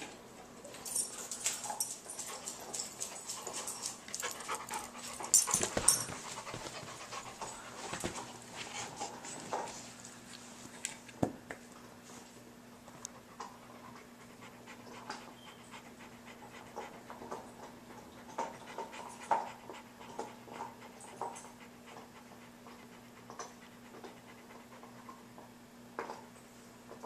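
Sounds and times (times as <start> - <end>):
dog panting: 2.1 - 9.8, 13.1 - 25.2.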